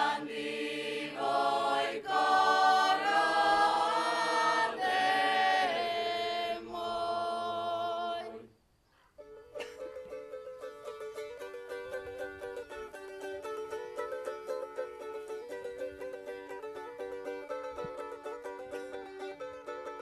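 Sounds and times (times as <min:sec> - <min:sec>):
group singing a cappella: 0:00.0 - 0:08.5.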